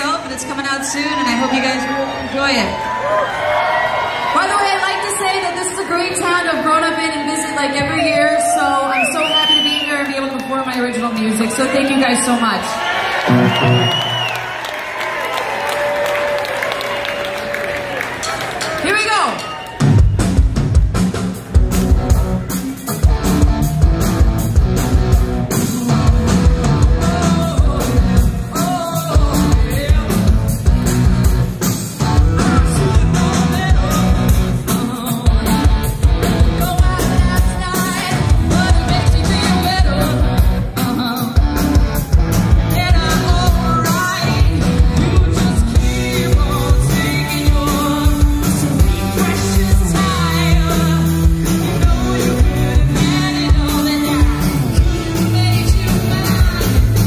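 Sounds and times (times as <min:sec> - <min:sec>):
steady drum beat: 0:18.5 - 0:57.0
electric bass guitar: 0:20.0 - 0:57.0
woman singing: 0:26.8 - 0:30.4, 0:32.4 - 0:41.6, 0:42.7 - 0:57.0.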